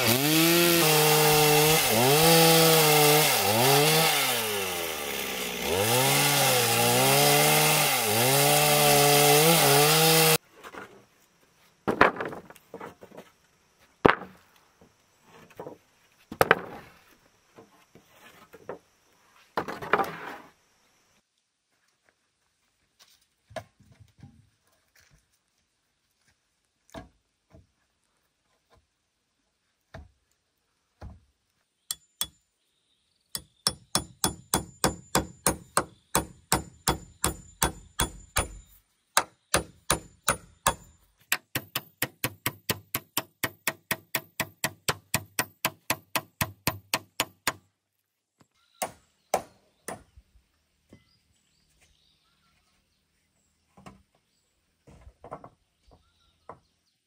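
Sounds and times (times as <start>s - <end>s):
hatchet chopping wood: 33.4s - 47.7s, 48.8s - 50.1s.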